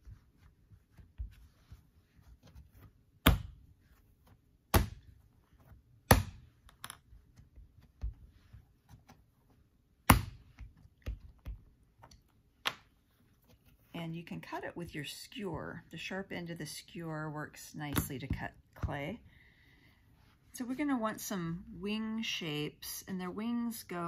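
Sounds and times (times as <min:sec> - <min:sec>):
palms slapping clay: 0:00.0 - 0:09.2.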